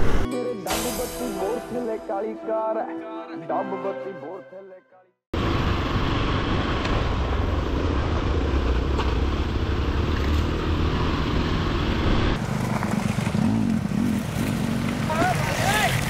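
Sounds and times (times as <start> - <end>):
motorcycle engine running: 5.4 - 16.0.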